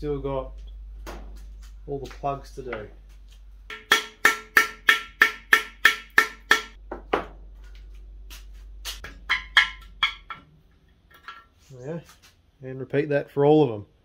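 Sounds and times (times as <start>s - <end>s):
hammer striking metal: 3.7s - 6.8s, 8.9s - 10.4s.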